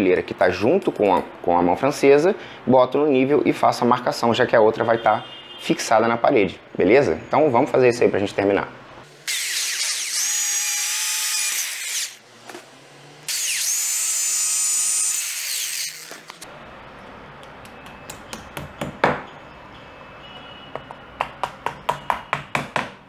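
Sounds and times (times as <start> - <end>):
electric drill boring into wall: 9.2 - 12.2, 13.2 - 16.4.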